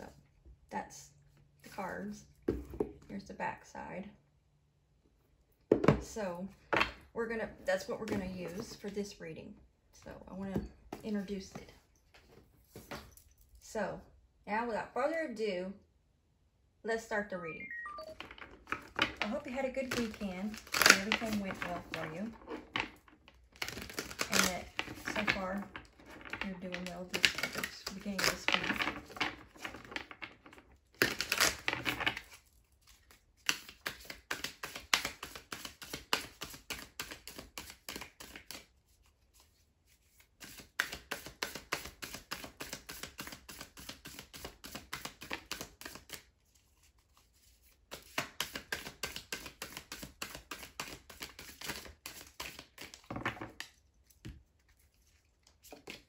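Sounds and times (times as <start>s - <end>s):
cards being shuffled: 18.2s - 30.2s, 31.0s - 56.0s.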